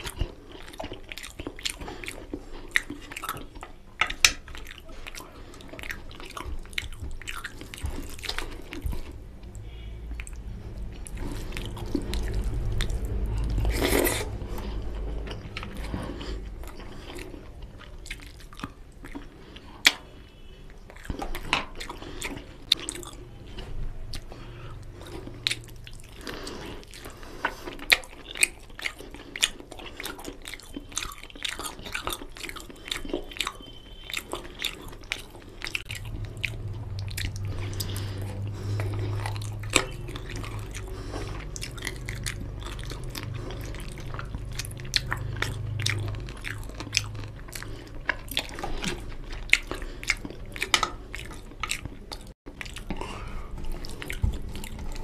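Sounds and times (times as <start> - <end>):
close-up chewing: 0.0 - 55.0
wet mouth clicks: 24.9 - 55.0.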